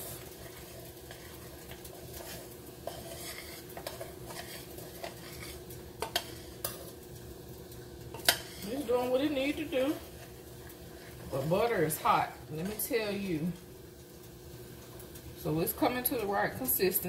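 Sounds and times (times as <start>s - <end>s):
faint sizzle: 0.0s - 17.0s
metal spoon scraping saucepan: 2.2s - 6.7s, 8.1s - 9.1s.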